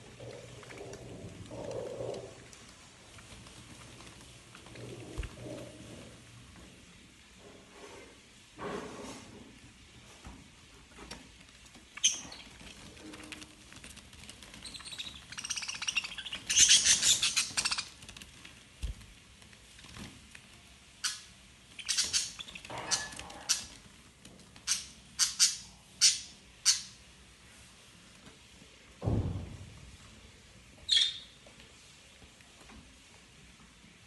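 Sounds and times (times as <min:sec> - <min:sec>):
budgerigars chirping and squawking: 0:14.6 - 0:17.9, 0:21.0 - 0:23.7, 0:24.7 - 0:27.0.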